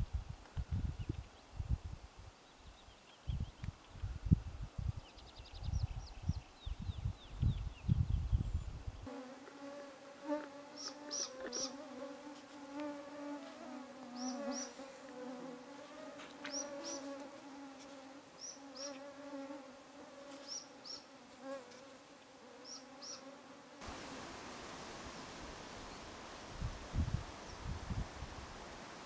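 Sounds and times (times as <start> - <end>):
flying insects buzzing: 9.0 - 29.0
small bird chirping: 10.8 - 11.8, 14.2 - 14.8, 22.6 - 23.3.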